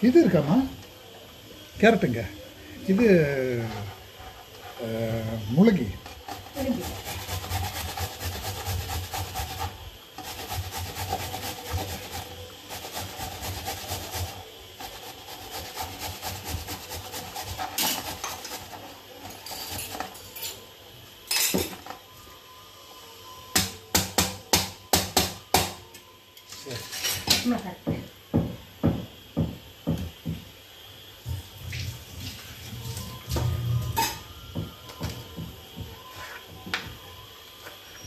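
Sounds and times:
vegetables grated by hand: 4.6 - 20.1.

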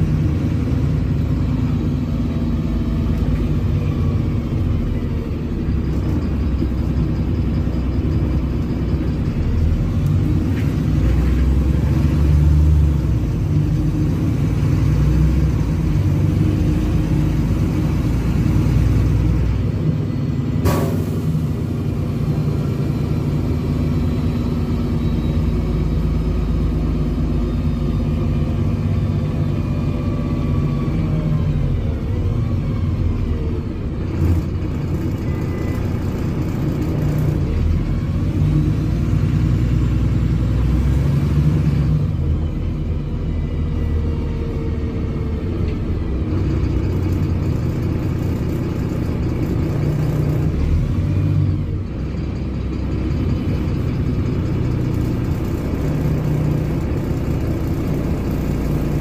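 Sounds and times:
bus engine rumbling: 0.0 - 59.0.

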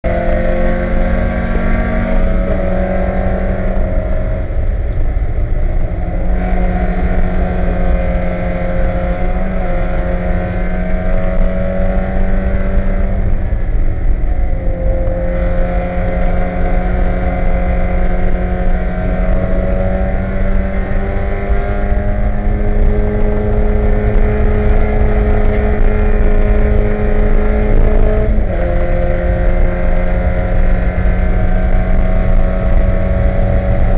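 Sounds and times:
race car engine running hard: 0.0 - 33.9.

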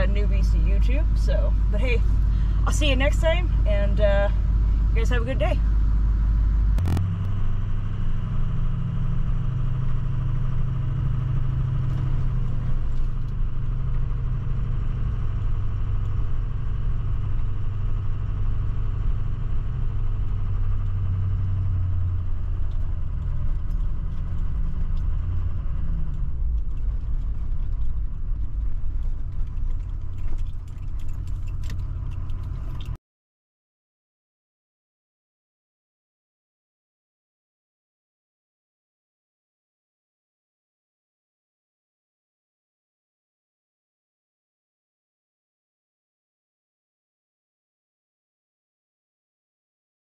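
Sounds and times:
engine and road rumble: 0.0 - 33.0
clicks: 6.8 - 7.4.

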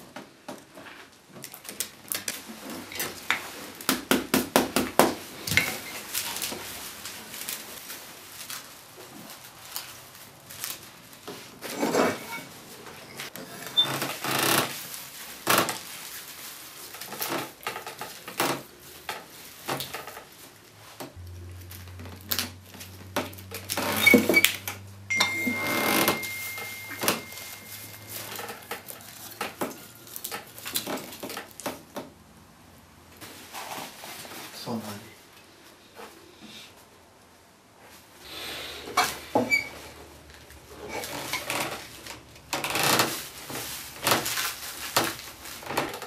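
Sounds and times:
broom straw rustling and scraping: 5.3 - 13.7, 14.7 - 23.0, 25.3 - 30.8, 42.8 - 46.0.

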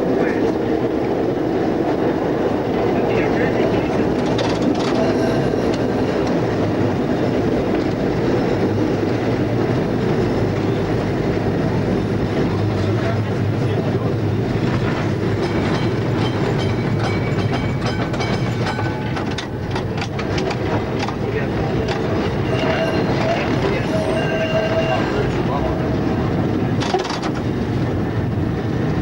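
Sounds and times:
tram wheels rumbling on rails: 0.0 - 29.0
wheels clicking over rail joints: 4.0 - 10.2, 14.5 - 23.7, 26.7 - 27.6.

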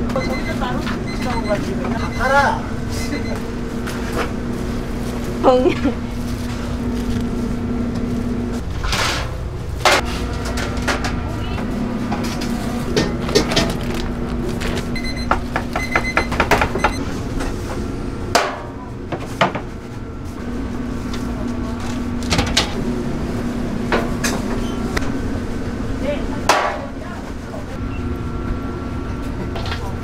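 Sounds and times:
steady low hum: 0.0 - 30.0
kitchen knocks and clatter: 12.1 - 14.0, 15.2 - 17.6.

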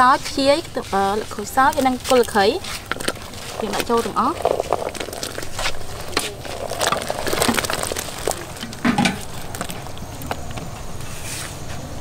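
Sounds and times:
broth bubbling: 0.2 - 11.2
food splashing into broth: 2.9 - 10.7.

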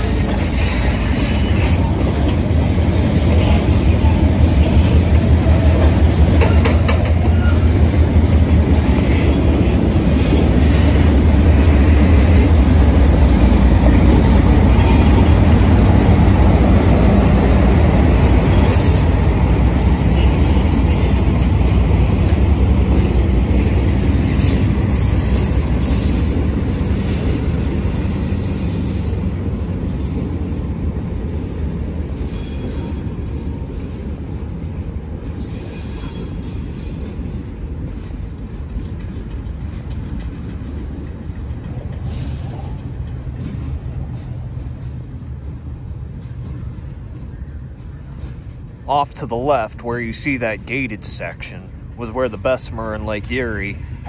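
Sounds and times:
freight cars rumbling past: 0.0 - 31.2
sharp clicks of train wheels: 0.0 - 54.0.

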